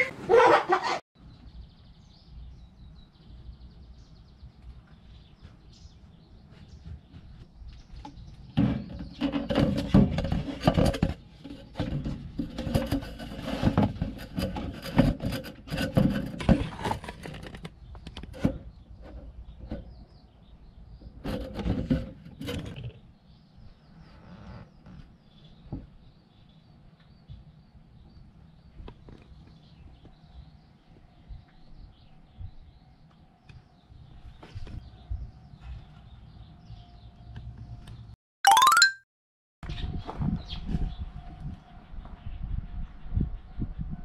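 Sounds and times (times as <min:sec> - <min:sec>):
plastic hose rubbing and scraping: 0:06.5 - 0:20.0, 0:21.1 - 0:23.0.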